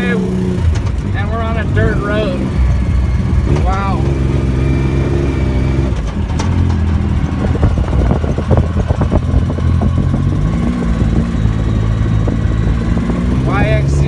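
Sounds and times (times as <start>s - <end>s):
off-road vehicle engine running: 0.0s - 14.0s
clatter of short knocks: 5.9s - 7.1s.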